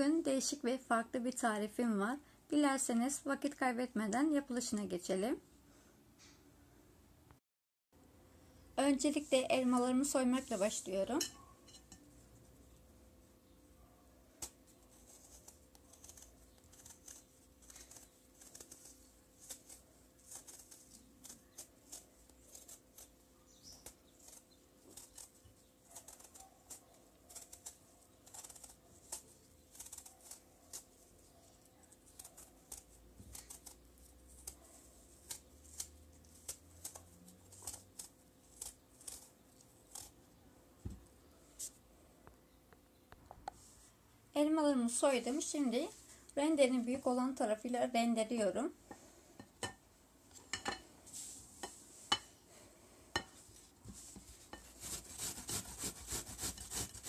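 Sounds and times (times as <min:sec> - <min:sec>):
knife peeling apples: 0:09.0 - 0:11.2, 0:14.3 - 0:41.8, 0:53.3 - 0:57.0.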